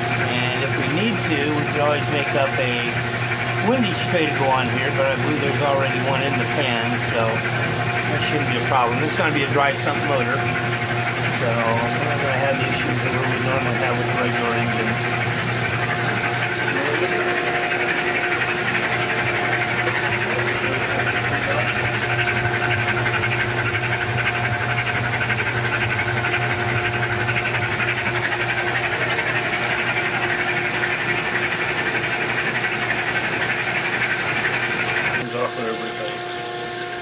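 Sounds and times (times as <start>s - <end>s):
engine being spun by machine: 0.0s - 37.0s
oil streaming into pan: 0.0s - 37.0s.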